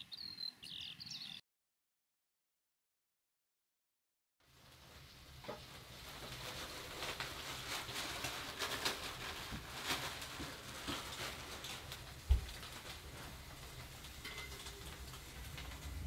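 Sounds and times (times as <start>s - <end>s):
fire crackling and popping: 4.4s - 16.0s.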